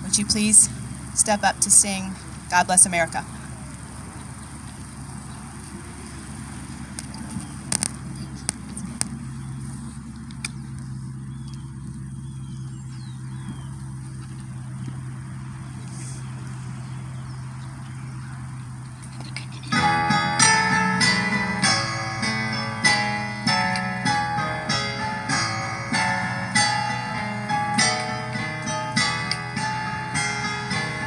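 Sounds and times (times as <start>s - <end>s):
steady low hum: 0.0s - 31.0s
sharp clicks: 6.9s - 9.2s, 10.2s - 11.6s.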